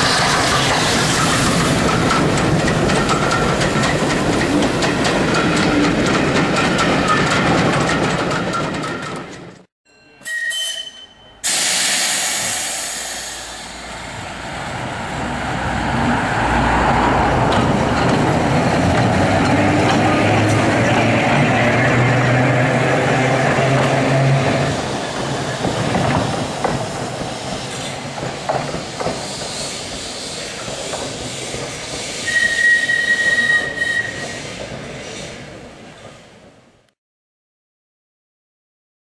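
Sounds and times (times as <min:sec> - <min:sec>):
train wheels clattering over rail joints: 0:00.0 - 0:09.7, 0:16.9 - 0:36.3
steady rail vehicle noise: 0:00.0 - 0:37.0
steam engine exhaust: 0:11.4 - 0:14.3.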